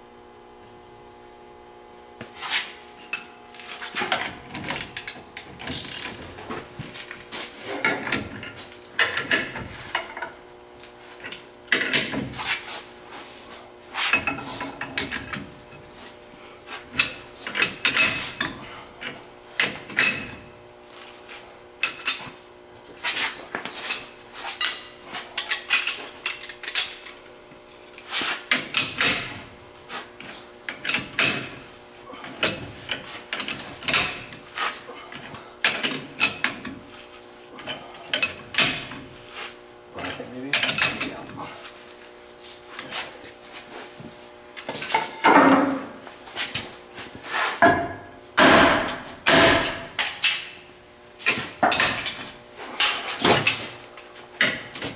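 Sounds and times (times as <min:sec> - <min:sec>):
steel tools clanking: 0:23.3 - 0:27.2, 0:40.0 - 0:41.5, 0:47.6 - 0:50.6.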